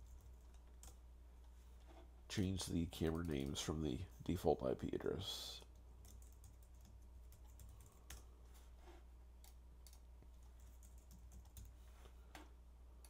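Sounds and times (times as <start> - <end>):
keyboard typing: 0.0 - 1.0, 5.7 - 8.3, 9.4 - 11.8.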